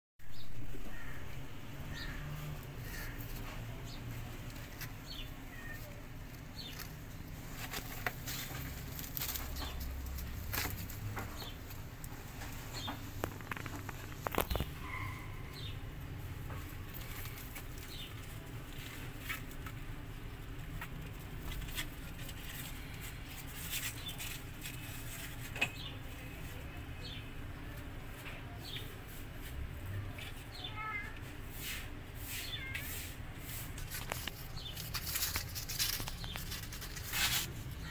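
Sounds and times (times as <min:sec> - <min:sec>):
kittens chirping: 0:00.3 - 0:07.0, 0:12.6 - 0:19.6, 0:30.2 - 0:37.9
kittens scratching on cardboard: 0:01.9 - 0:14.8, 0:15.6 - 0:27.2, 0:27.8 - 0:37.9.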